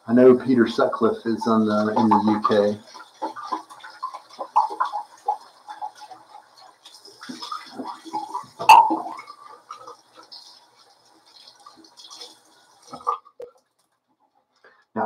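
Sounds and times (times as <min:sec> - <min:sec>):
water splashing at a sink: 0:00.0 - 0:14.5.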